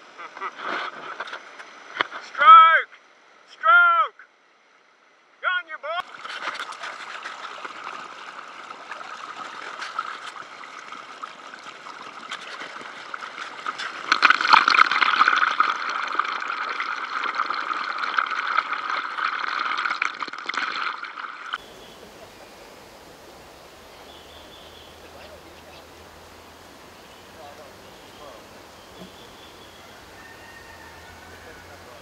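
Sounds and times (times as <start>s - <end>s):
paddle stroke splashes: 6.0s - 32.0s
water gurgling and splashing: 6.0s - 32.0s.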